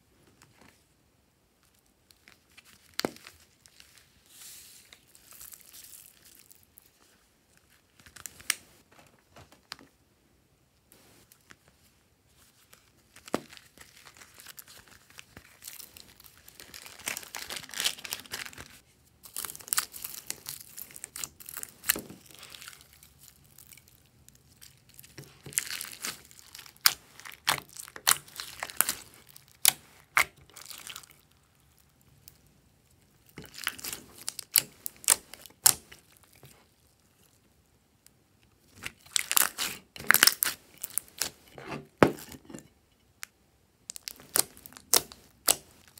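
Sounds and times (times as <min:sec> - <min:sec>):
slime crackling and clicking: 0:43.9 - 0:45.7.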